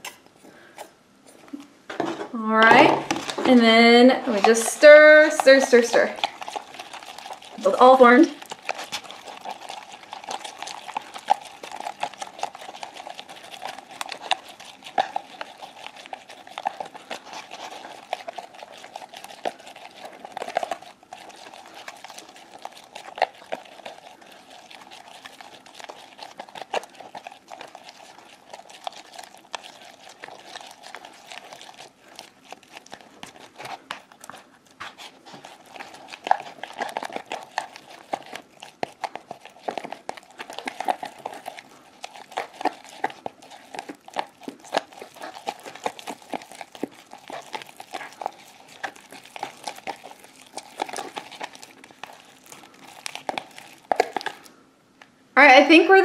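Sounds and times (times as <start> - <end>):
stick scraping in bowl: 2.4 - 9.7.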